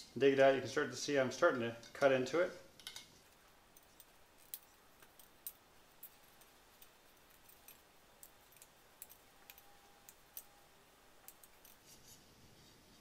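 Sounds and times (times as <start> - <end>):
metal tool clicking: 3.8 - 11.8.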